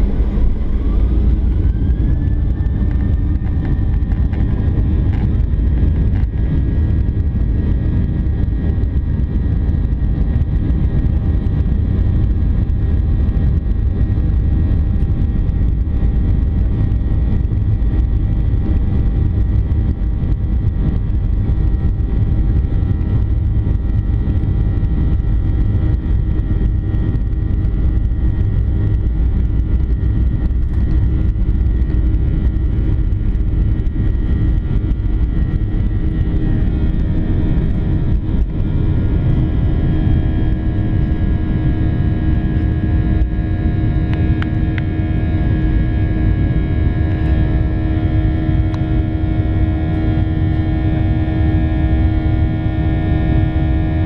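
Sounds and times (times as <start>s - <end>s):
jet engines low rumble and whine: 0.0s - 54.0s.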